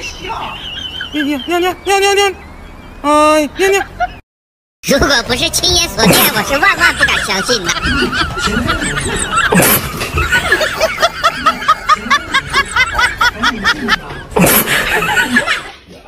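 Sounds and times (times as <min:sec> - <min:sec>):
high-pitched giggles: 0:06.1 - 0:15.8.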